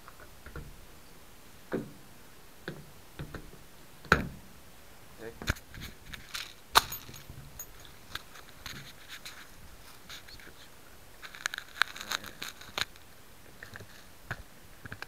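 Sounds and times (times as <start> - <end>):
handling noise on microphone: 5.4 - 10.6, 11.2 - 15.0.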